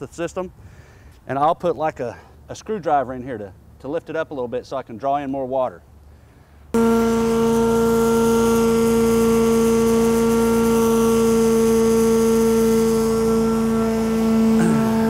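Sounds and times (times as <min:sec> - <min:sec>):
vacuum machine droning whine: 0:06.8 - 0:15.0.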